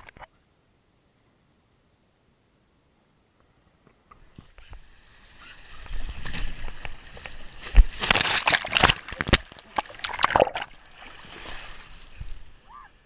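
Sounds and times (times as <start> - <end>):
water rushing and splashing: 4.7 - 13.0.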